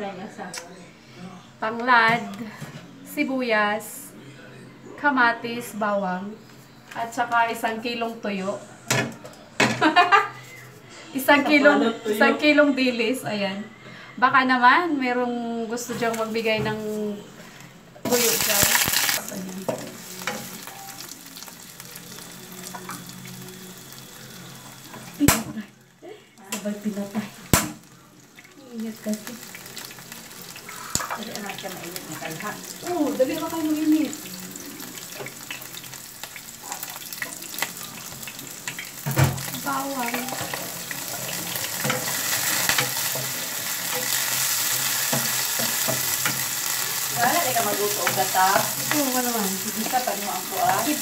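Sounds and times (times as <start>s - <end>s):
onions sizzling in oil: 18.0s - 25.6s, 26.4s - 51.0s
spatula scraping and tapping pan: 38.7s - 46.5s.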